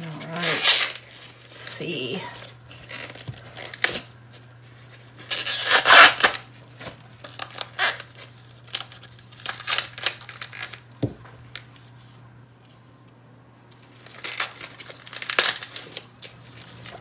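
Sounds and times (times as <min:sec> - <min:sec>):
corn husks tearing: 0:05.0 - 0:06.5, 0:07.2 - 0:10.8, 0:14.0 - 0:17.0.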